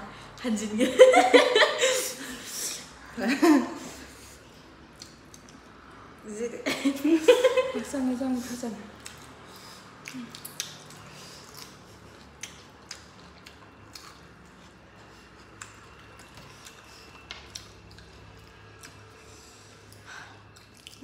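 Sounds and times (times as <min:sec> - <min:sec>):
wet chewing and lip smacks: 0:04.8 - 0:05.9, 0:09.0 - 0:21.0.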